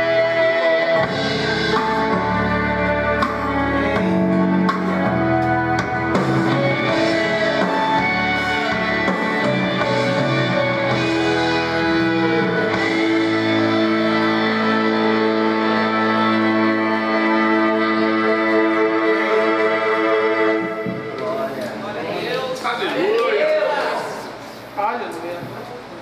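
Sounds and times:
instrumental backing track: 0.0s - 22.6s.

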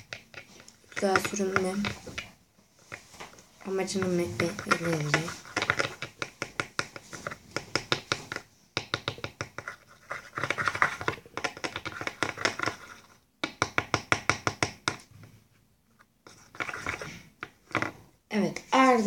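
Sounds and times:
brush scraping in plastic lid: 0.0s - 8.5s, 16.3s - 18.0s.

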